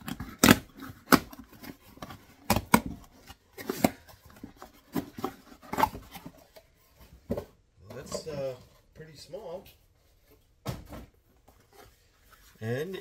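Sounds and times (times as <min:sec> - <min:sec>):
packing tape tearing: 0:00.0 - 0:03.0
cardboard rustling and scraping: 0:00.0 - 0:13.0.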